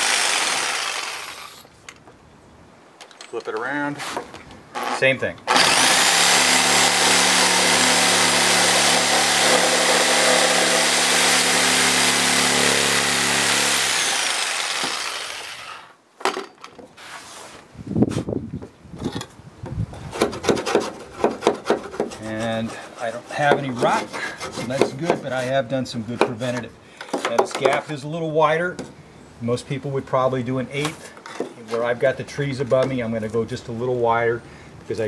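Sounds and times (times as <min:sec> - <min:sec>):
reciprocating saw cutting wood: 0:00.0 - 0:01.7, 0:04.8 - 0:16.0
hand tool scraping wood: 0:04.0 - 0:15.9, 0:20.0 - 0:27.8.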